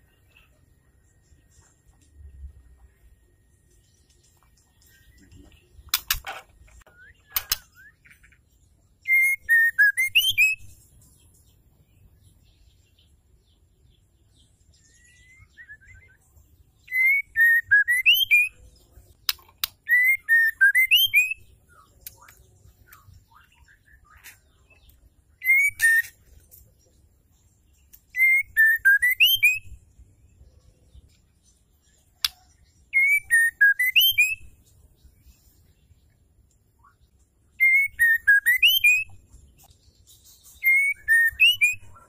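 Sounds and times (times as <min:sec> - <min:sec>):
sharp clicks: 0:05.9 - 0:07.7
bird whistled song: 0:06.8 - 0:08.4, 0:09.0 - 0:26.4, 0:27.7 - 0:36.2, 0:36.8 - 0:42.0.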